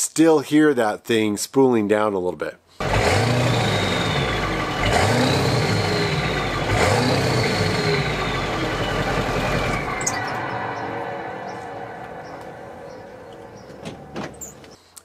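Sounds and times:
diesel engine revving: 2.8s - 14.8s.

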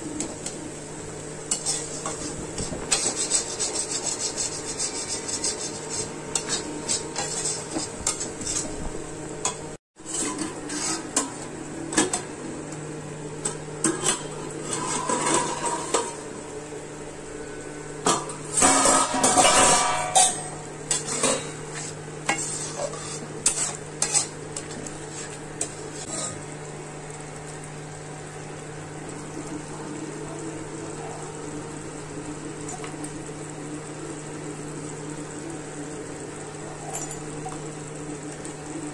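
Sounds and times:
food sizzling: 0.0s - 38.9s
spatula scraping metal pan: 1.5s - 8.8s, 10.0s - 11.3s, 14.0s - 16.1s, 18.5s - 24.4s, 25.1s - 26.4s.

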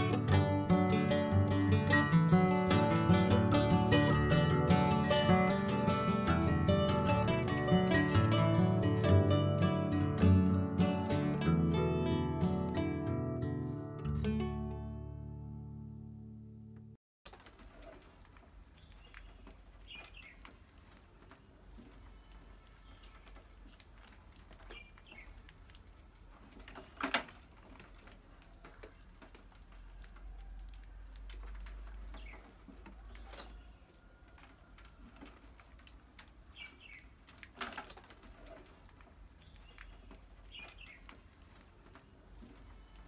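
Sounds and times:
mice scrabbling: 17.3s - 43.0s.

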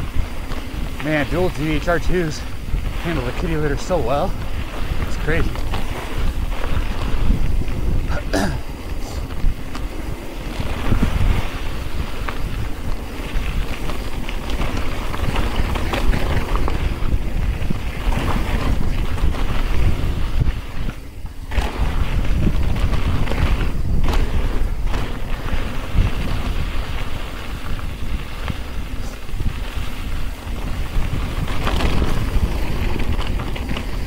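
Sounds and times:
bike rattling: 0.0s - 34.0s
tyres crunching over gravel: 0.0s - 34.0s
wind rushing over microphone: 0.0s - 34.0s.

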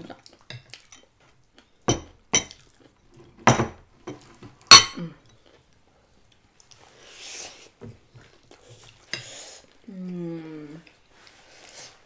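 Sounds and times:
tableware clinking: 1.9s - 2.6s, 3.4s - 5.0s.

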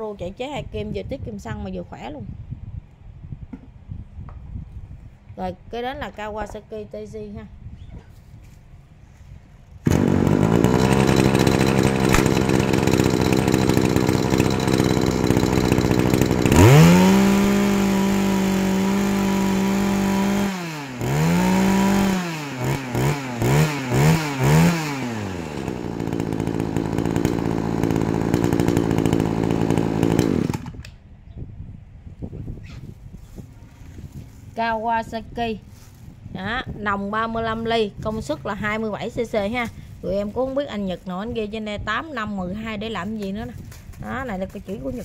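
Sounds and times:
brush-cutter engine revving: 9.8s - 31.0s.

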